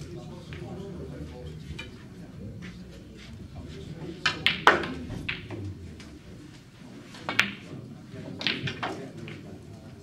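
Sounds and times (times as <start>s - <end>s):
snooker balls clicking: 4.2s - 6.1s, 7.2s - 7.7s, 8.4s - 9.6s.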